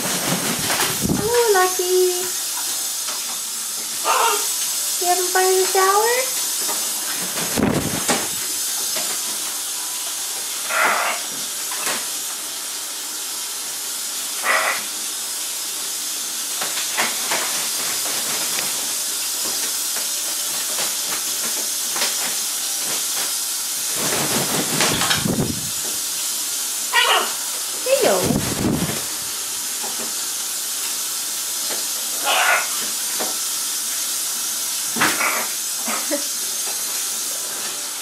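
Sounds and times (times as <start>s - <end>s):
wings flapping: 0.0s - 1.2s, 7.0s - 8.4s, 20.5s - 25.7s, 28.2s - 29.2s.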